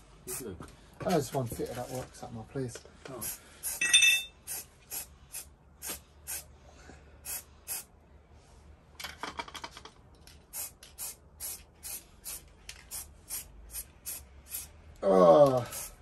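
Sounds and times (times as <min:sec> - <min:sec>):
spray paint can hissing: 0:04.4 - 0:06.5, 0:07.2 - 0:07.9, 0:10.4 - 0:14.8, 0:15.5 - 0:16.0
spray can ball rattling: 0:09.3 - 0:14.7, 0:15.5 - 0:16.0.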